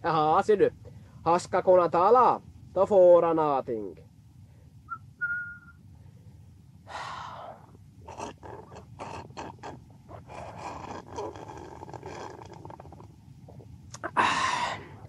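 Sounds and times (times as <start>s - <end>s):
high whistle-like tone: 4.9s - 5.8s
man slurping and gulping: 7.4s - 15.0s.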